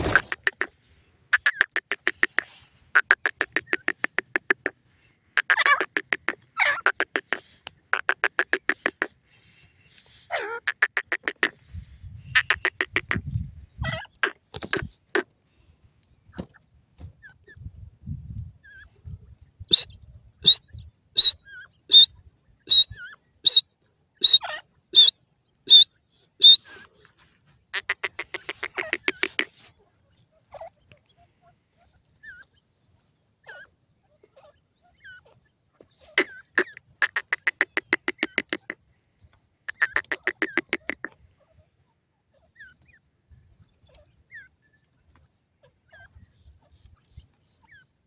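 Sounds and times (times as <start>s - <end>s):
francolin calling: 0.0s - 11.6s, 12.2s - 15.2s, 19.6s - 27.1s, 27.7s - 41.7s.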